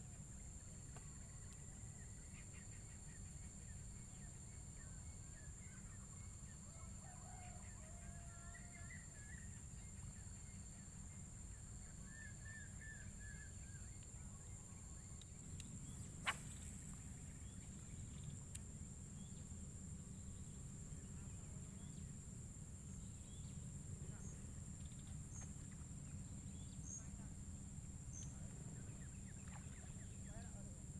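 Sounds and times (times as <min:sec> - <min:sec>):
steady high hum: 0:08.9 - 0:30.9
sharp click: 0:15.2 - 0:17.0
small birds chirping: 0:28.1 - 0:30.7.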